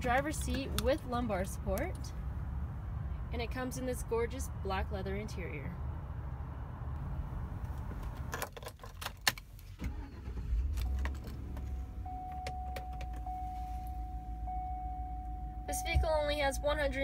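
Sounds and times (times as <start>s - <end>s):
car engine starting and idling: 0.0s - 4.0s, 6.4s - 17.0s
steady high tone: 11.9s - 17.0s.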